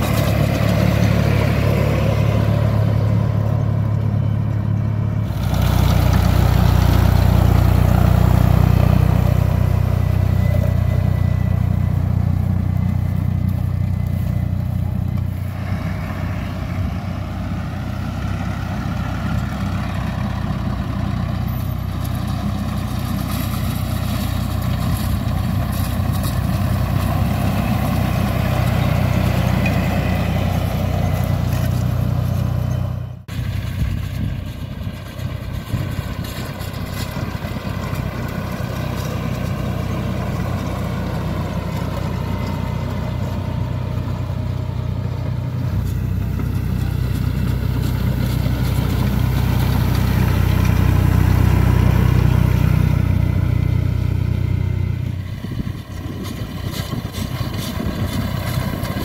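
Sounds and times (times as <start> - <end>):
tractor engine under load: 0.0 - 59.0.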